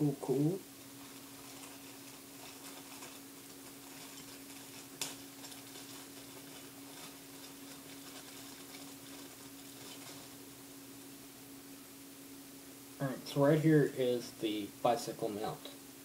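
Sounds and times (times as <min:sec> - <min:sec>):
recording static hiss and hum: 0:00.0 - 0:16.0.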